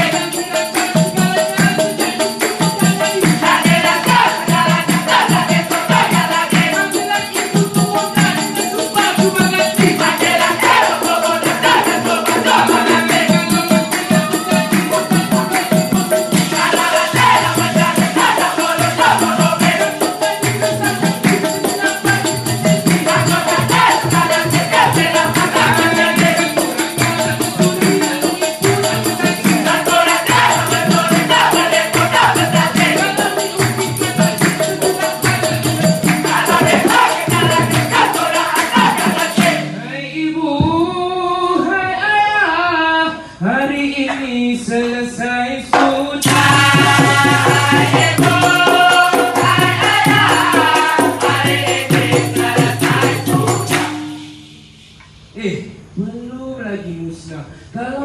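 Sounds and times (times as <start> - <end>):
man singing solo: 0.0 - 34.0
male chorus chanting: 0.0 - 34.1, 34.8 - 40.3, 46.2 - 53.7
shakers and percussion: 0.0 - 39.8, 45.8 - 55.3
hands clapping: 12.2 - 15.7, 19.6 - 21.7, 33.6 - 39.6, 53.7 - 54.0.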